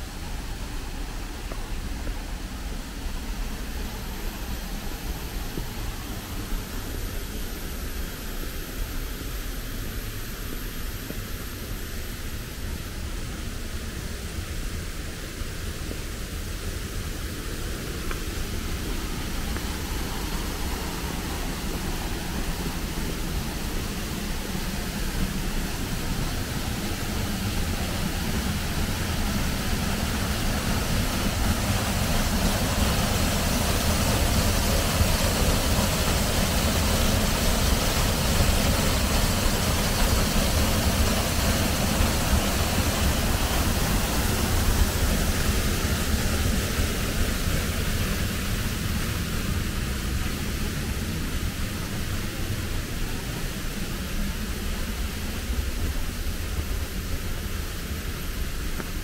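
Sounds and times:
waterfall rushing into pool: 16.6s - 54.0s.

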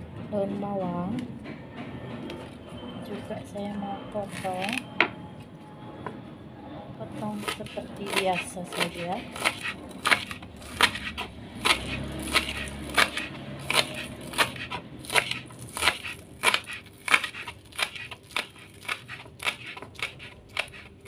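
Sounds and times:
knife slicing onions on board: 7.2s - 21.0s.

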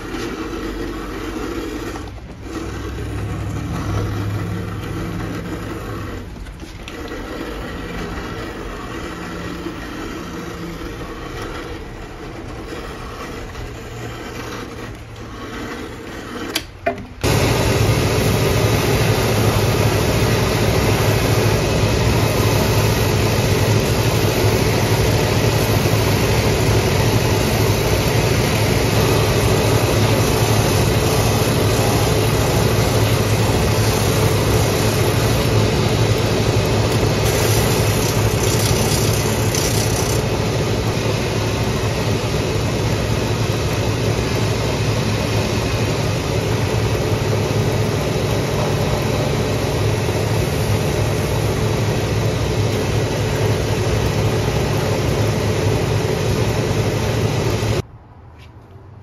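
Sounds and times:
leather grinding against wheels: 0.0s - 16.6s, 26.0s - 40.3s
sanding machine droning: 0.0s - 16.6s, 17.2s - 57.8s.

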